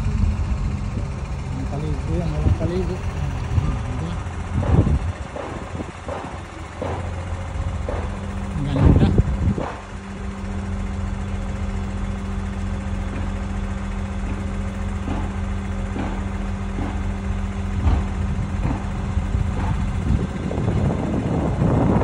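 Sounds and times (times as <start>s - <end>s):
diesel engine running: 0.0s - 22.0s
knocks: 4.6s - 7.2s, 7.8s - 9.9s, 14.2s - 15.4s, 16.0s - 17.1s, 17.8s - 18.9s, 19.6s - 20.0s.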